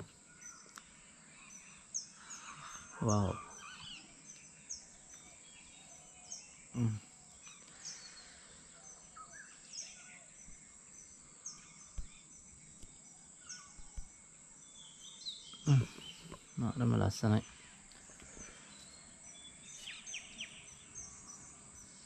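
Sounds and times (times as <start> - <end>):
background birdsong: 0.0 - 22.0
bird chirping: 0.0 - 22.0
man's voice: 3.0 - 3.4.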